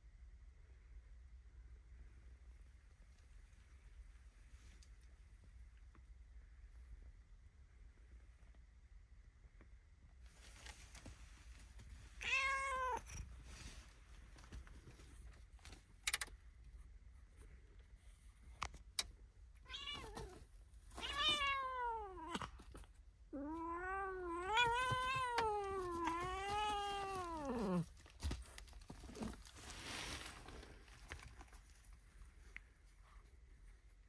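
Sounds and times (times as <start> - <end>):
short rustle: 10.2 - 12.3, 24.9 - 34.0
cat meowing: 12.2 - 13.2, 19.7 - 20.4, 21.0 - 22.5, 23.4 - 27.9.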